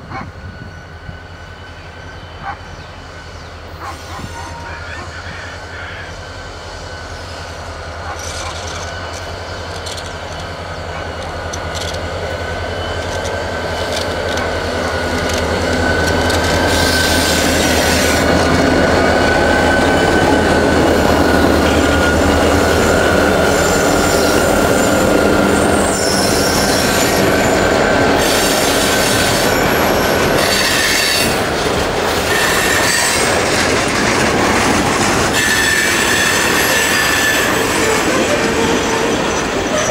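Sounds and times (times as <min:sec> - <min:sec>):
diesel locomotive engines droning: 0:00.0 - 0:39.9
train wheel squeal: 0:00.0 - 0:39.9
wheels clacking over rail joints: 0:08.0 - 0:39.9.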